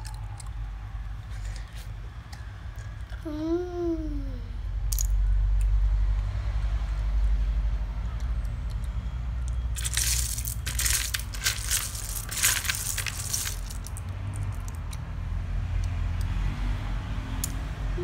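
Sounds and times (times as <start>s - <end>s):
clam shells clattering in a bowl: 9.8s - 14.8s.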